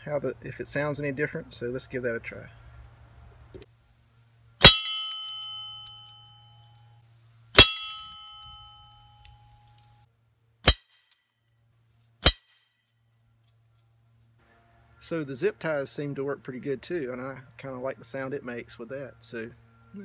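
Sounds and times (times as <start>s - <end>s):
pellets ringing a bell target: 4.6s - 6.7s, 7.6s - 9.2s.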